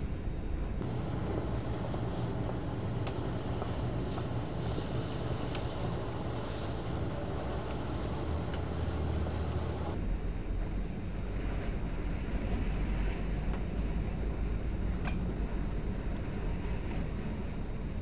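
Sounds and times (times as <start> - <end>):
boat engine rumbling: 0.6 - 18.0
wind on microphone: 0.7 - 10.0
faint sharp clicks: 8.5 - 8.7.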